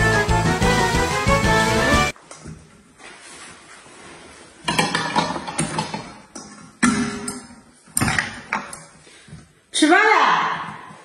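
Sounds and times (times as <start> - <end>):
metal covers knocking and clattering: 4.6 - 8.8.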